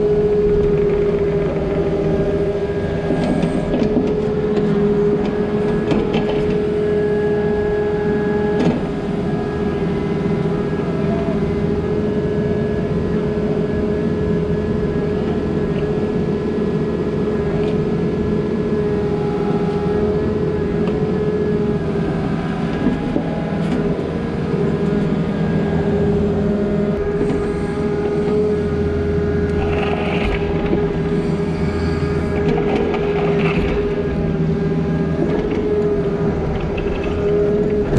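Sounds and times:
diesel engine running: 0.0s - 37.9s
steady hum: 18.7s - 37.9s.

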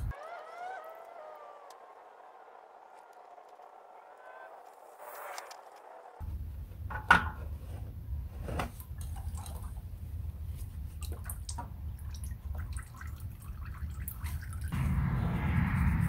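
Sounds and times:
oil dripping and trickling: 8.8s - 14.8s.

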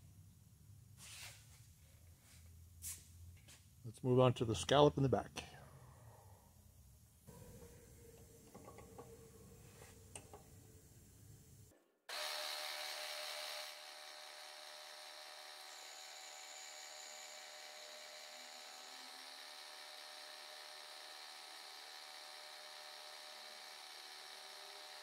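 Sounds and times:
milling machine whining cut: 12.1s - 25.0s.

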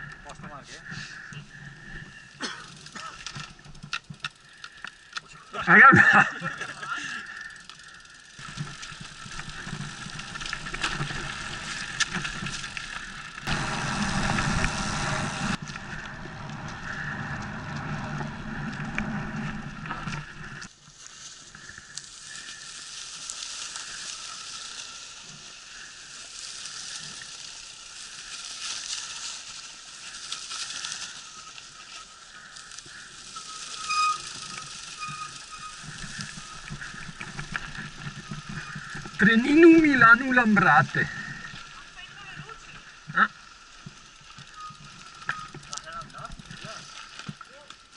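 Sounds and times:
bike rattling and clicking: 0.0s - 47.9s
bike tyres rolling over grass and dirt: 0.0s - 47.9s
wind hiss: 7.5s - 47.6s
high squeal: 33.2s - 37.3s.

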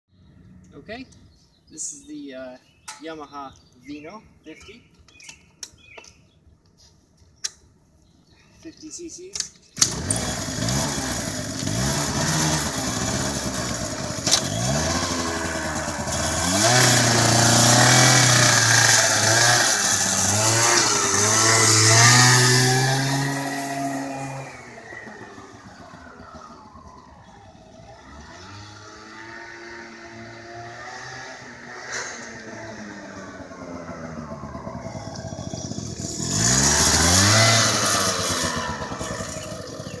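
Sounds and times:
scooter engine revving: 9.8s - 40.0s.

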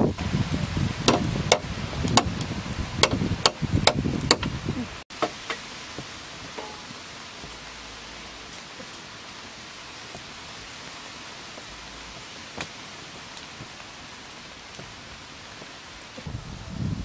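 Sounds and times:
fire crackling pops: 0.0s - 17.0s
wood fire hissing: 0.0s - 17.0s.

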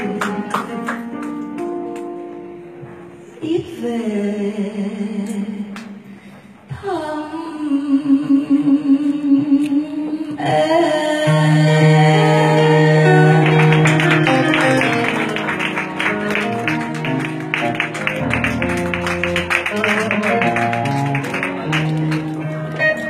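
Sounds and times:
band playing ballad: 11.2s - 23.0s
plucked guitar notes: 11.2s - 23.0s.

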